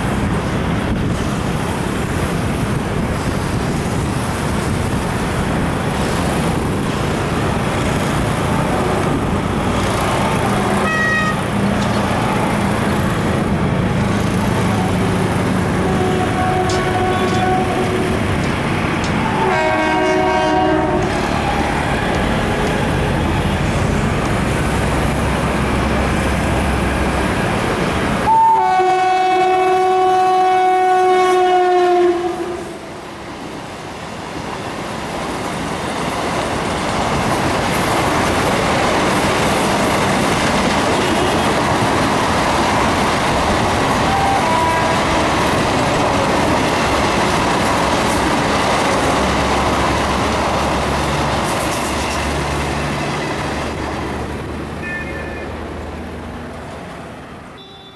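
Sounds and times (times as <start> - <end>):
train rumble and hiss: 0.0 - 57.9
train horn blasts: 10.4 - 11.5, 15.8 - 18.0, 19.2 - 22.2, 28.3 - 32.8, 44.1 - 45.3, 54.8 - 55.6, 57.6 - 57.9.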